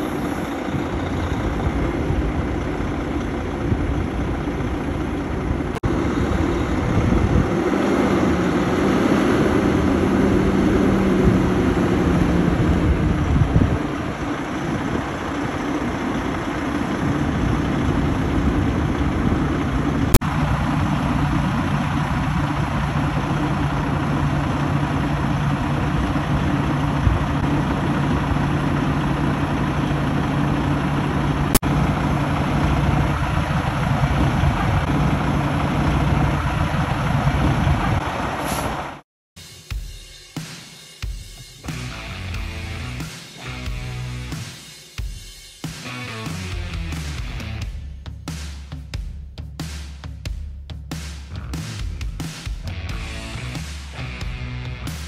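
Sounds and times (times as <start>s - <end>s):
diesel truck idling: 0.0s - 39.0s, 41.7s - 44.4s, 52.7s - 55.0s.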